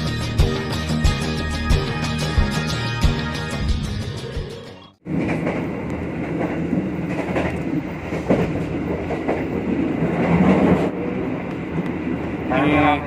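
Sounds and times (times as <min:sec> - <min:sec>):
train wheels rumbling on rails: 0:05.0 - 0:13.0.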